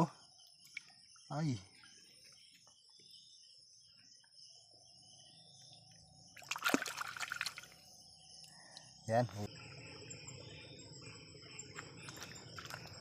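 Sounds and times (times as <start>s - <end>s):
insects chirring: 0.0s - 13.0s
hand splashing in stream water: 6.4s - 7.8s.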